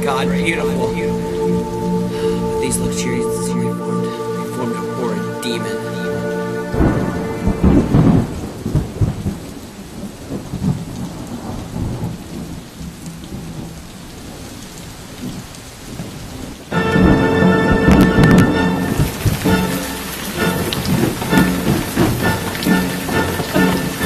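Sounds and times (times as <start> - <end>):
music: 0.0 - 8.5, 16.7 - 24.0
steady rain: 0.0 - 24.0
rumbling thunder: 6.7 - 24.0.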